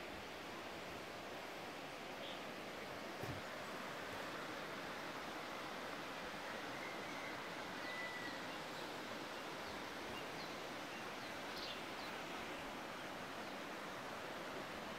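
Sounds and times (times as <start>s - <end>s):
outdoor background hiss: 0.0s - 14.9s
short faint whistle: 6.7s - 8.4s.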